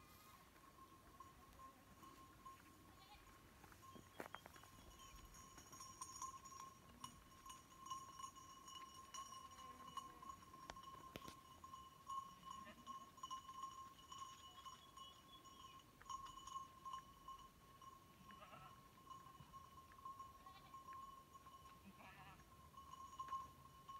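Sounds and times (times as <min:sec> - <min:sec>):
distant sheep and goats bleating: 0:02.8 - 0:03.4, 0:18.2 - 0:19.5, 0:20.2 - 0:21.0, 0:21.7 - 0:22.5.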